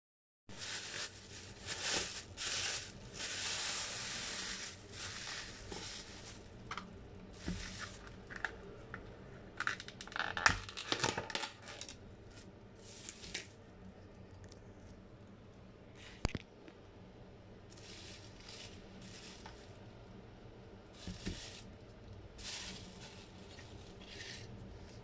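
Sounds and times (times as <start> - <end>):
plastic bag rustling: 0.5 - 8.6, 9.7 - 13.5, 17.7 - 19.8, 21.0 - 21.8, 22.4 - 25.0.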